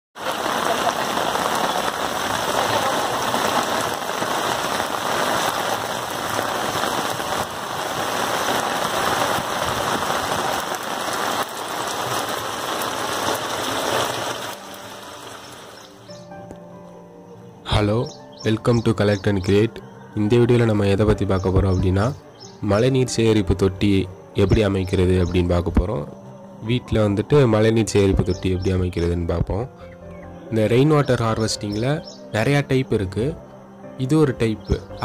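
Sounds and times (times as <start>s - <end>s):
rain splashing into standing water: 0.2s - 16.1s.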